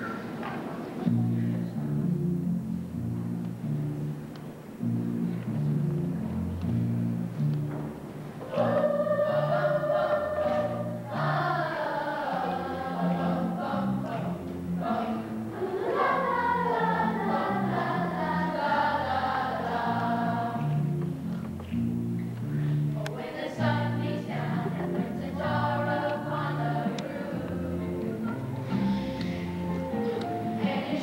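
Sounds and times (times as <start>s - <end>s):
instrumental accompaniment: 0.0s - 31.0s
children's choir singing: 8.3s - 21.2s, 23.0s - 31.0s.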